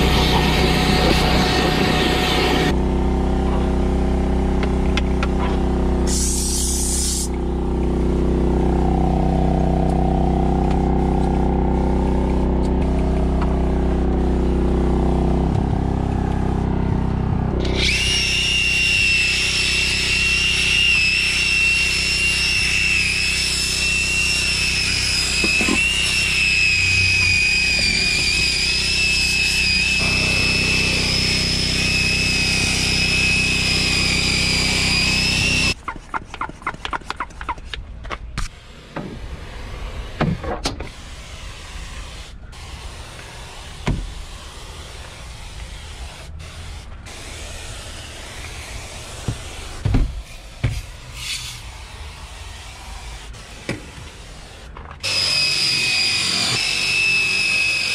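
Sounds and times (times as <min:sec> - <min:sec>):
low machine hum: 0:00.0 - 0:06.1, 0:07.3 - 0:18.0, 0:29.9 - 0:35.8
spray hiss: 0:06.1 - 0:07.3, 0:40.9 - 0:54.7
cordless drill whining: 0:17.6 - 0:35.8, 0:55.0 - 0:57.9.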